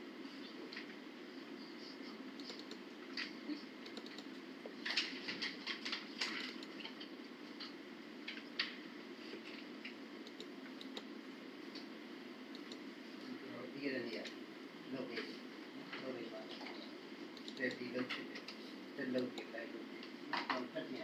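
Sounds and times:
low room hum: 0.0 - 21.0
computer clicks and taps: 2.4 - 2.8, 3.9 - 4.4, 9.9 - 11.1, 12.5 - 12.8.

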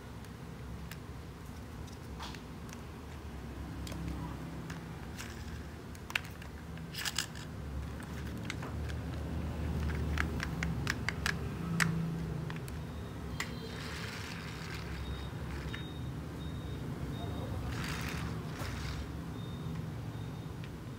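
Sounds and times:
plastic toy clicks and taps: 3.8 - 12.8.

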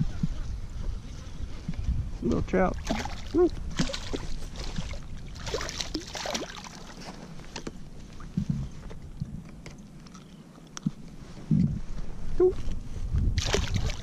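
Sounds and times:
fish splashing in water: 2.8 - 7.0, 13.4 - 14.0.

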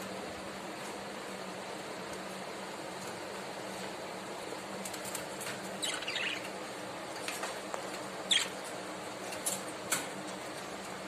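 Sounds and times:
budgerigars chirping: 5.8 - 6.6, 8.3 - 8.7.

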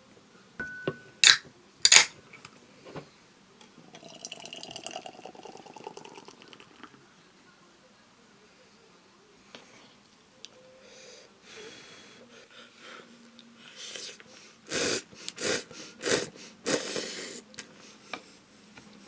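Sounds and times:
person slurping noodles: 13.8 - 17.4.

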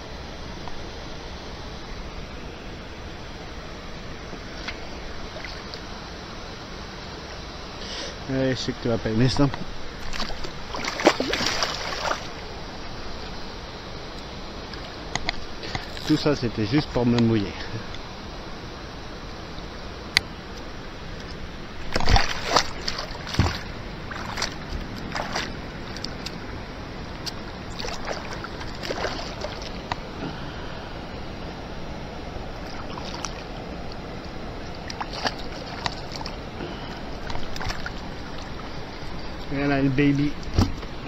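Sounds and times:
water splashing and sloshing: 3.4 - 6.5, 9.2 - 16.8, 20.4 - 41.0
fish thrashing at surface: 10.0 - 12.4, 21.8 - 26.0, 27.2 - 30.0, 34.7 - 38.8.

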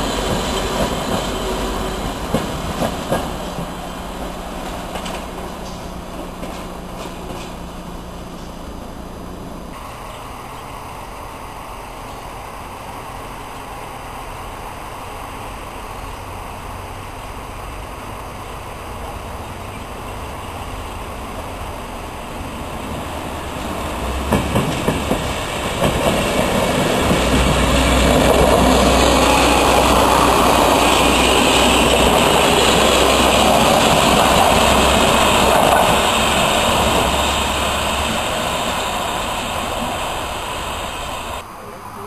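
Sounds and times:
train wheels clicking over rail joints: 0.0 - 8.7, 22.2 - 40.7
diesel railcar engine drone: 0.0 - 42.0.

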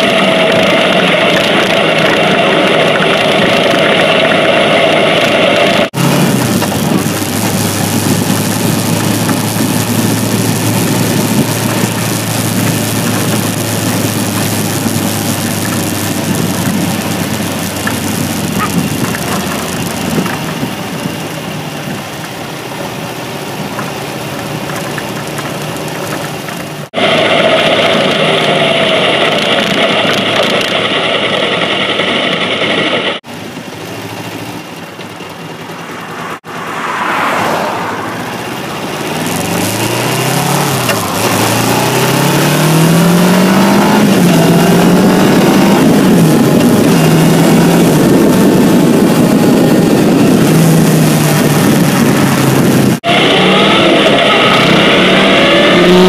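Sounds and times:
wind noise on microphone: 0.0 - 22.2, 38.6 - 56.0
motorcycle engine running: 0.0 - 56.0.

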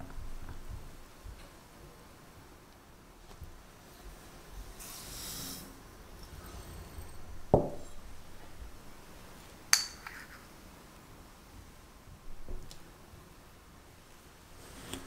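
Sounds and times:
kitchenware clinking: 9.7 - 10.4.

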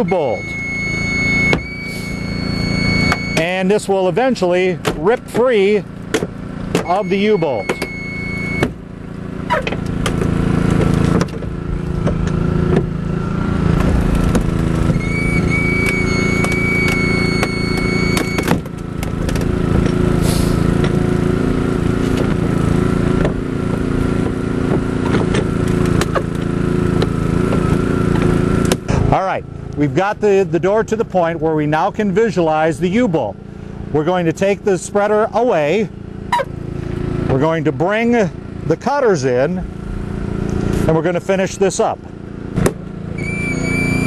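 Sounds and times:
high metal squeal: 0.0 - 3.6, 6.9 - 8.7, 14.8 - 18.6, 43.1 - 44.0
power unit engine drone: 0.0 - 44.0.

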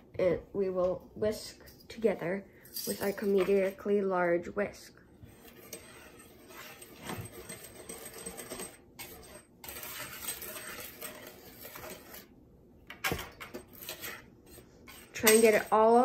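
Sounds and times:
whisk rattling against plastic bowl: 6.5 - 12.2.

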